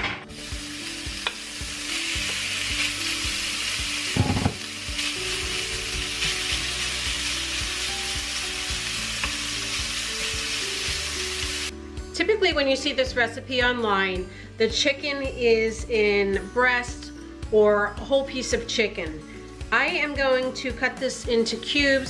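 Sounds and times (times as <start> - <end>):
bacon sizzling in a skillet: 0.3 - 11.7.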